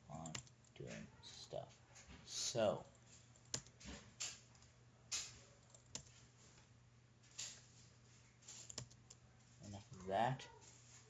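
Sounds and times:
mouse and keyboard clicks: 8.5s - 9.2s.

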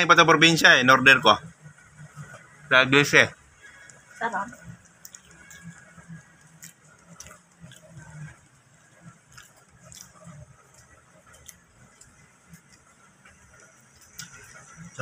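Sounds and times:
person chewing: 4.8s - 15.0s.

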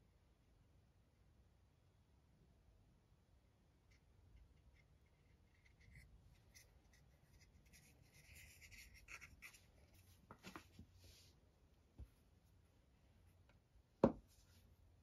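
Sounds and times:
soft knocks on cutting mat: 14.0s - 14.3s.

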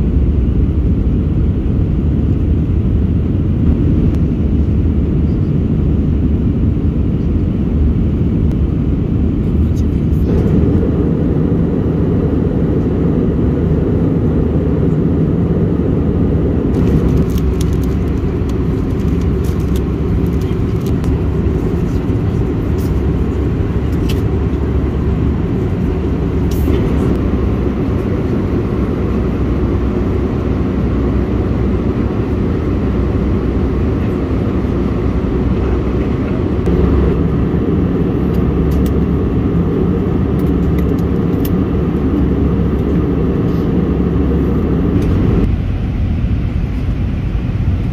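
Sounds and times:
airplane cabin engine rumble: 0.0s - 47.9s
faint clicks and rustles: 16.8s - 23.1s.

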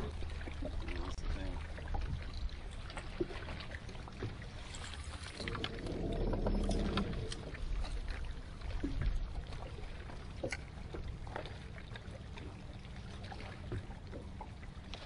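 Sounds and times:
water lapping against boat: 0.0s - 15.0s
low rumble: 5.2s - 9.6s.

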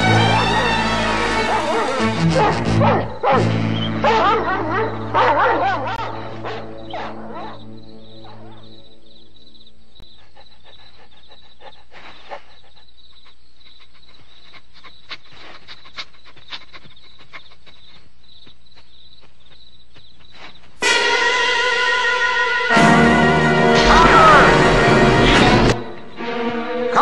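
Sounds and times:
loud music: 20.8s - 26.1s.

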